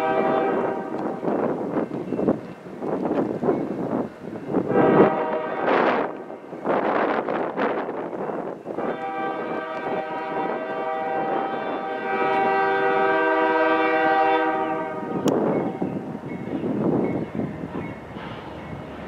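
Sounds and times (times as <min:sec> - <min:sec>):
locomotive air horn chord: 0:00.0 - 0:01.1, 0:04.7 - 0:06.2, 0:08.8 - 0:15.9
gusty rushing noise: 0:00.0 - 0:19.0.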